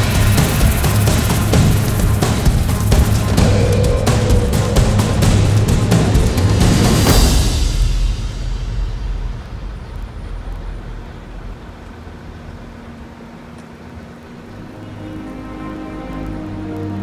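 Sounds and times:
music: 0.0s - 9.4s, 12.8s - 17.0s
faint steady hum: 0.5s - 17.0s.

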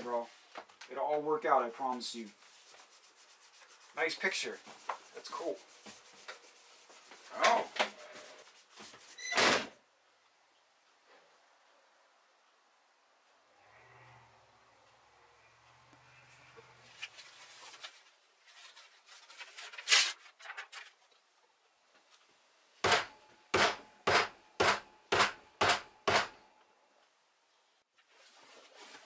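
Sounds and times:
faint rustling handling noise: 0.0s - 9.2s, 16.1s - 22.5s, 27.9s - 29.0s
sharp knocks: 22.8s - 26.3s.

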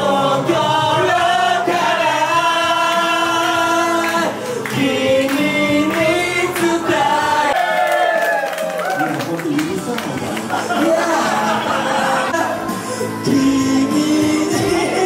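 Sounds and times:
man singing into microphone: 0.0s - 7.5s, 11.2s - 15.0s
musical accompaniment: 0.0s - 7.6s, 9.5s - 15.0s.

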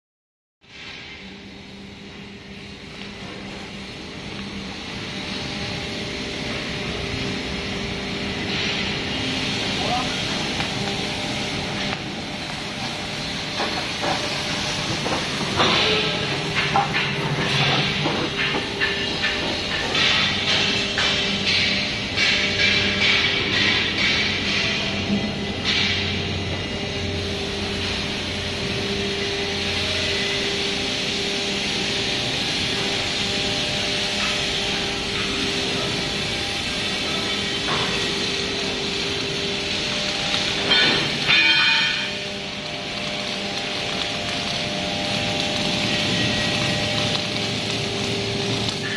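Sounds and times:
cutting torch hissing: 0.6s - 48.9s
steady mid-pitched machine tone: 15.5s - 48.9s.

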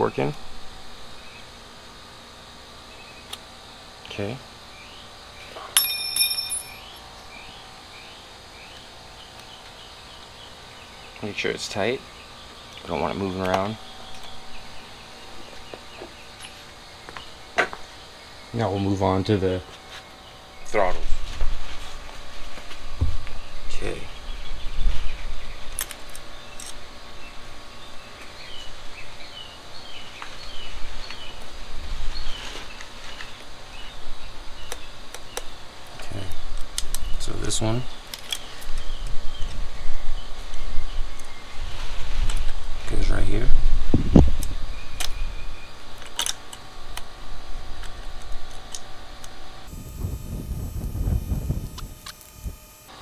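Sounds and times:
bird chirping: 4.7s - 21.2s, 23.3s - 31.6s, 37.0s - 41.6s.

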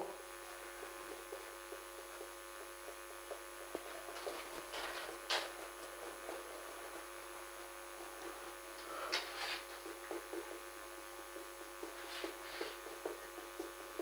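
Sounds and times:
steady electrical hum: 0.0s - 14.0s
marker pen on whiteboard: 11.3s - 14.0s.

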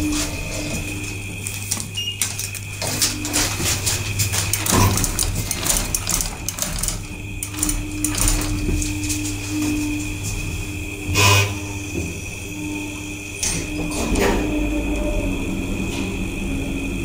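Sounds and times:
elevator doors sliding shut: 0.0s - 17.0s
steady low hum: 0.0s - 17.0s
steady mid-pitched tone: 7.7s - 17.0s.

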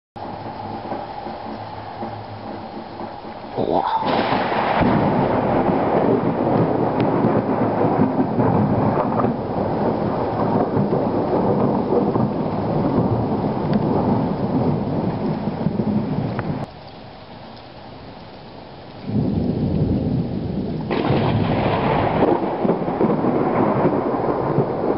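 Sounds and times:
loud thunder rumble: 0.2s - 16.7s, 19.0s - 24.9s
rain falling: 0.2s - 24.9s.

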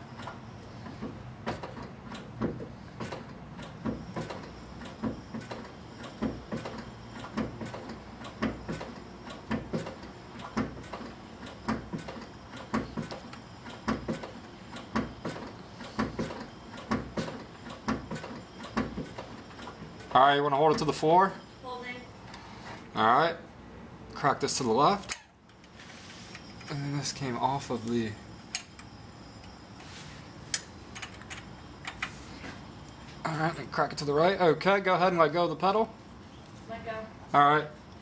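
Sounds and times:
clutch mechanism clunking: 30.5s - 32.1s.

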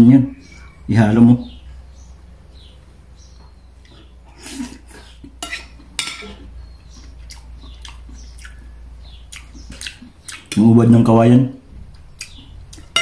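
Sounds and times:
cutlery scraping a ceramic plate: 4.7s - 6.5s, 12.8s - 13.0s.

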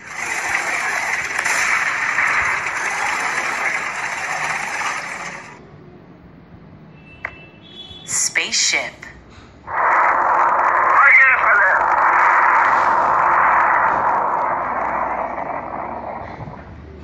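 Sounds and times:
tank engine: 0.0s - 5.6s, 9.7s - 17.0s.

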